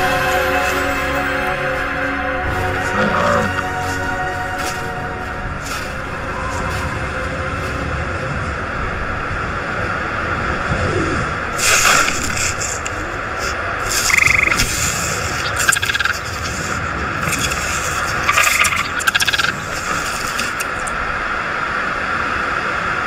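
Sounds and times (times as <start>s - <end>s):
raspy croaking animal calls: 2.6s - 3.8s, 13.8s - 21.0s.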